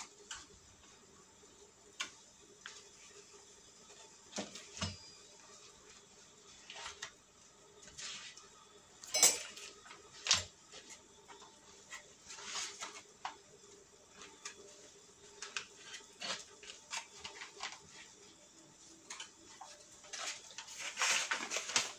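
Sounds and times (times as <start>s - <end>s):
knife scraping butter on bread: 15.6s - 17.7s.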